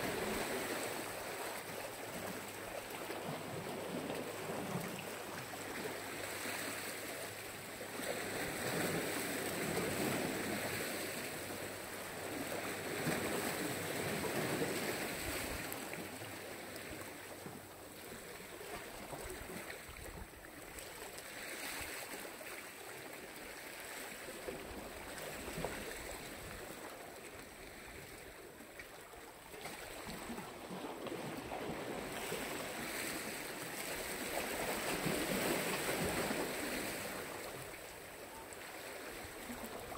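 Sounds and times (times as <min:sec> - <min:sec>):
waves washing ashore: 0:00.0 - 0:39.9.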